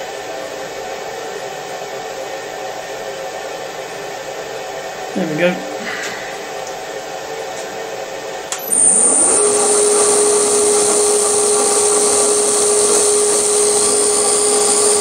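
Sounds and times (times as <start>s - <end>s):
milling machine motor humming: 8.5s - 15.0s.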